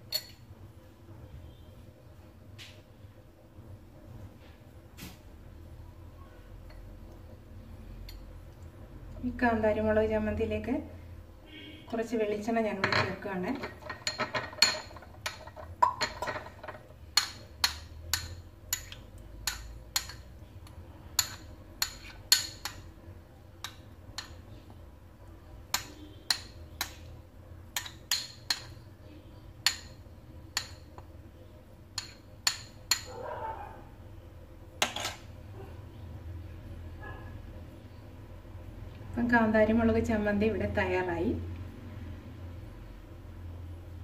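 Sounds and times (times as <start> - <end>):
spoon clinking against glass bowl: 0.1 - 0.4, 17.2 - 20.2.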